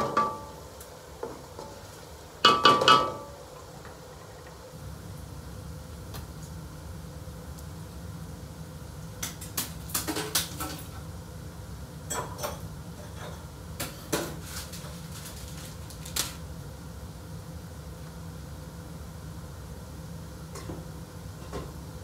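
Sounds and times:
kitchenware clattering: 0:00.0 - 0:00.5, 0:02.4 - 0:03.3, 0:12.1 - 0:14.9
steady low hum: 0:00.0 - 0:10.0.

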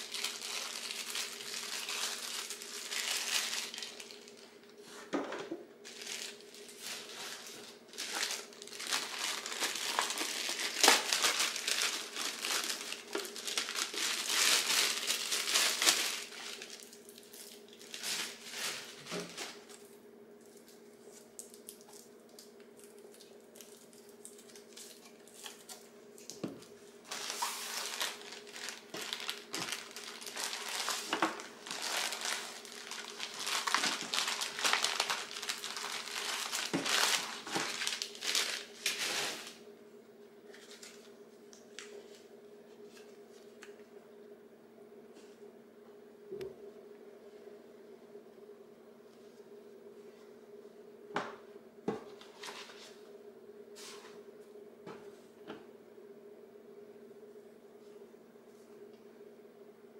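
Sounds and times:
plastic bag crinkling: 0:00.0 - 0:04.6, 0:05.8 - 0:19.8, 0:27.0 - 0:39.6.

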